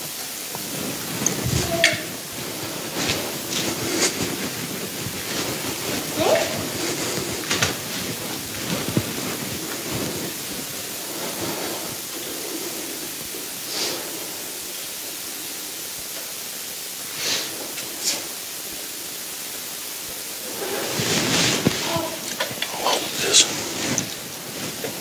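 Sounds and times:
room noise hiss: 0.0s - 25.0s
soft high-pitched rustles: 0.2s - 25.0s.

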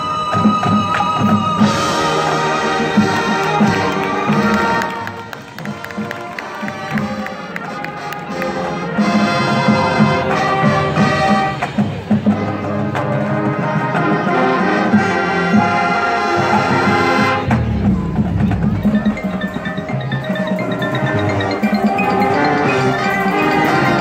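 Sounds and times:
marching band brass: 0.0s - 24.0s
marimbas and mallet percussion: 17.8s - 24.0s.

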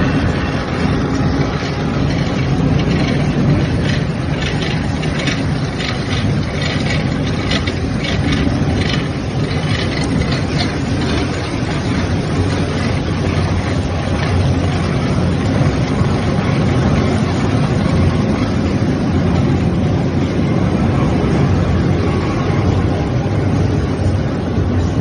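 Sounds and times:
pellet mill mechanical drone: 0.0s - 25.0s.

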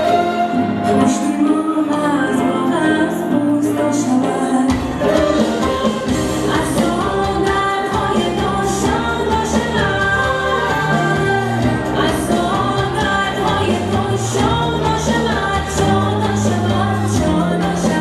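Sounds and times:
instrumental backing: 0.0s - 18.0s
woman singing pop song: 0.0s - 18.0s
bass line: 4.8s - 18.0s.

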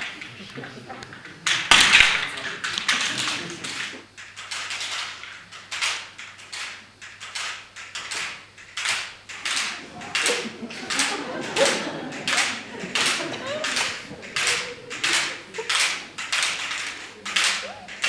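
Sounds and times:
rattling swishes of shaken slats: 8.0s - 18.0s.

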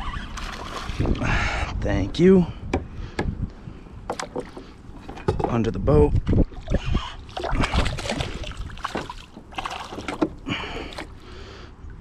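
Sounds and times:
fish splashing in water: 6.5s - 11.2s.

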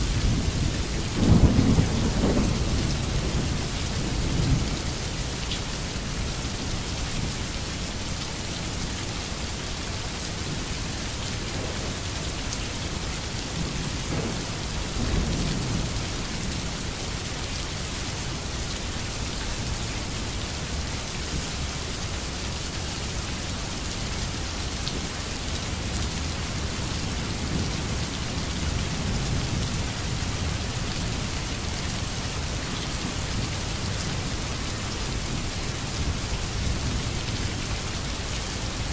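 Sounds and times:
heavy rainfall: 0.0s - 38.9s
distant thunder rolling: 13.6s - 16.0s.

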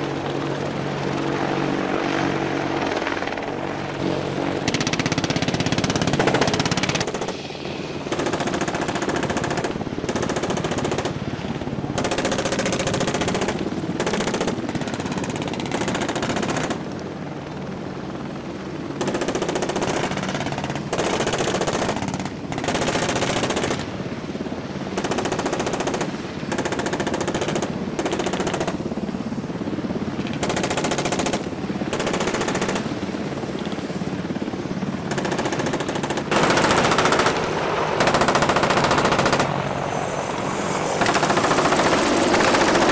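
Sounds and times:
automatic gunfire bursts: 12.0s - 16.8s, 35.1s - 39.6s, 41.0s - 42.9s.

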